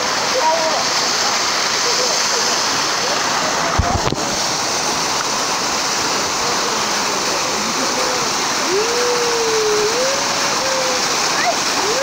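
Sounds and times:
waterfall rushing over rocks: 0.0s - 12.0s.

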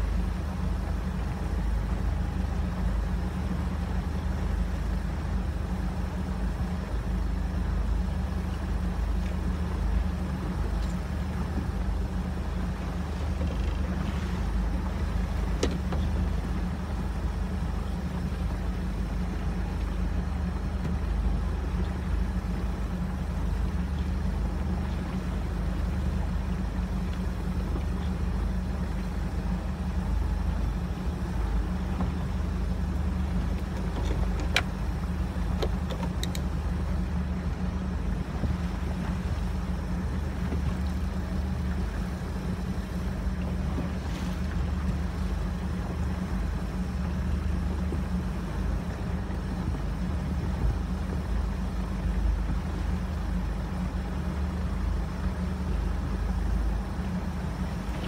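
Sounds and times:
boat engine droning: 0.0s - 58.0s
water wash: 0.0s - 58.0s
light clicks: 33.4s - 34.8s, 35.5s - 36.6s.

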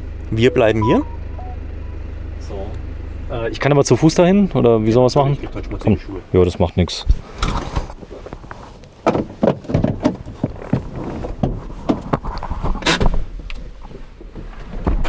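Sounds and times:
vehicle door knocks and rustles: 9.0s - 12.2s.

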